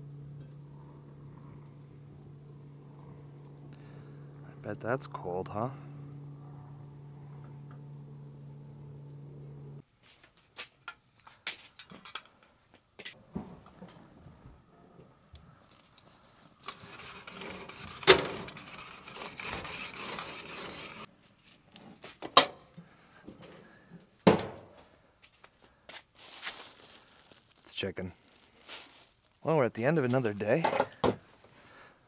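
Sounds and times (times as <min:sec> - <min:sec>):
gas grill hissing: 0:00.0 - 0:10.2, 0:13.0 - 0:21.1, 0:26.3 - 0:32.0.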